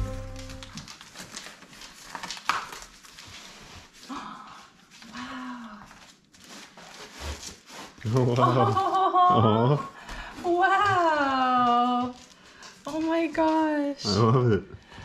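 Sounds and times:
cardboard box being torn open: 0:00.0 - 0:03.2
cardboard rustling and scraping: 0:05.9 - 0:08.5.

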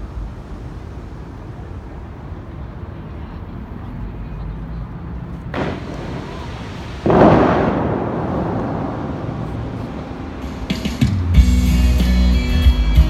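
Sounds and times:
rushing jets and falling spray: 0:00.0 - 0:12.7
water cannon booms: 0:05.5 - 0:11.7.

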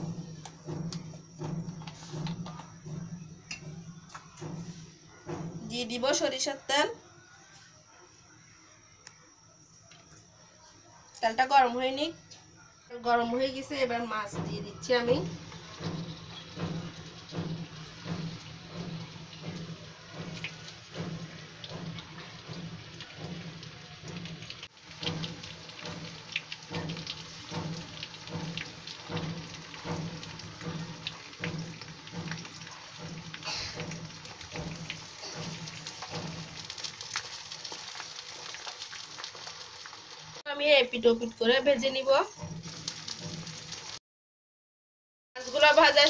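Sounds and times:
fish frying in oil: 0:13.6 - 0:44.0, 0:45.4 - 0:46.0.

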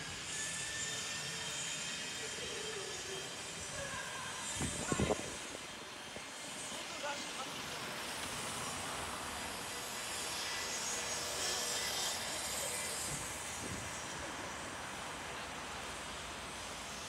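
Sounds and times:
city street traffic: 0:00.0 - 0:17.0.

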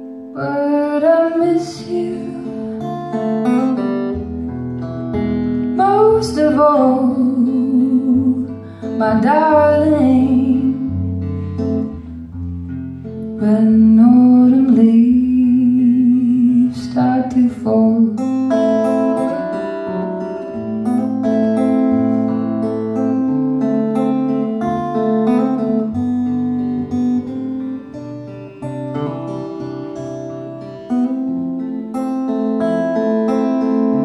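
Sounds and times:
acoustic guitar: 0:00.0 - 0:34.0
woman singing: 0:00.3 - 0:02.9, 0:05.8 - 0:11.1, 0:13.4 - 0:19.4.

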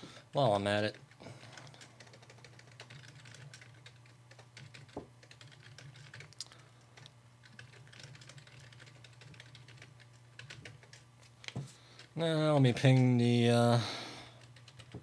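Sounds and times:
low steady hum: 0:00.0 - 0:15.0
typing on a computer keyboard: 0:00.3 - 0:13.1, 0:14.3 - 0:15.0.

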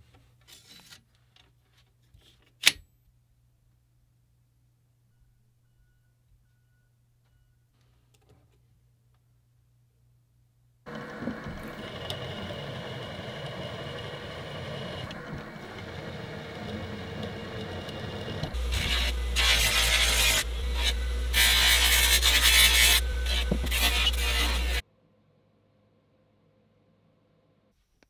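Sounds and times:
bench buffer motor humming: 0:10.9 - 0:24.8
milling machine drilling steel: 0:10.9 - 0:24.8
steel grinding on buffer wheel: 0:10.9 - 0:24.8.

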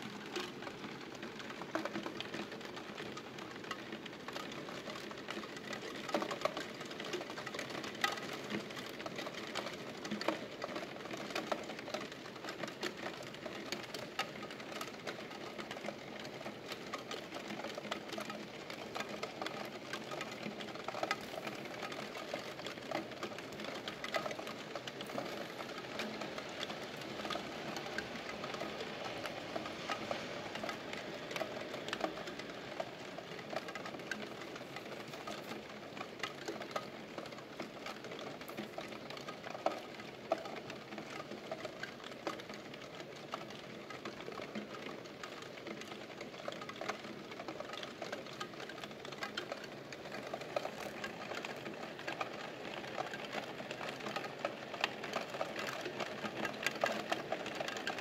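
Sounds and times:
rain patter: 0:00.0 - 0:58.0.

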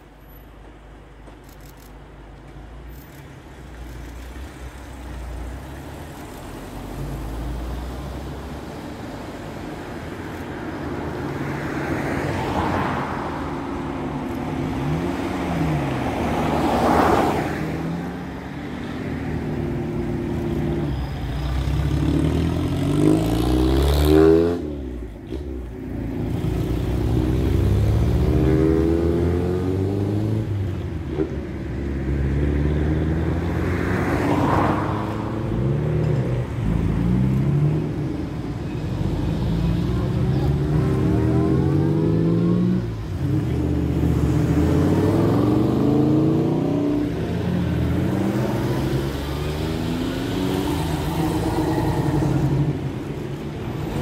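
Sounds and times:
cars accelerating past: 0:11.2 - 0:20.9, 0:21.5 - 0:54.0.

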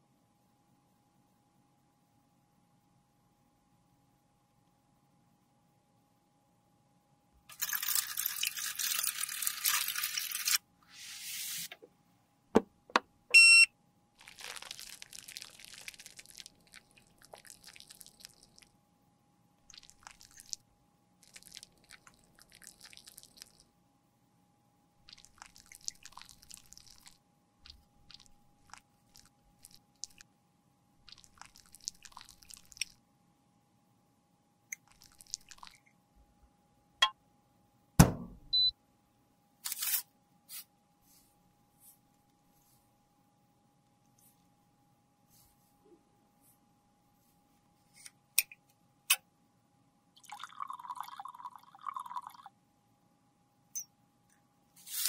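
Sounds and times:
liquid pouring onto metal tools: 0:07.5 - 0:10.6
sharp knocks: 0:38.0 - 0:38.5.

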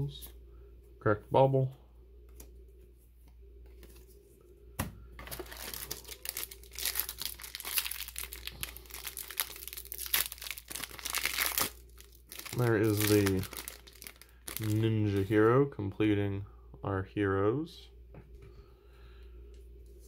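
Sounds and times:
foil wrapper crackling: 0:05.2 - 0:15.3.

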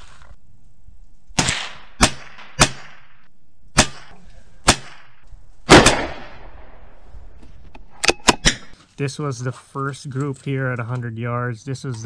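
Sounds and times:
rifle shots echoing: 0:01.3 - 0:07.3.

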